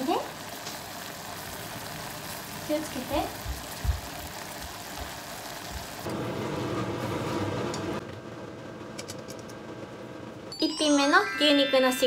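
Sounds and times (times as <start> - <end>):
meat sizzling in saucepan: 0.0 - 7.4.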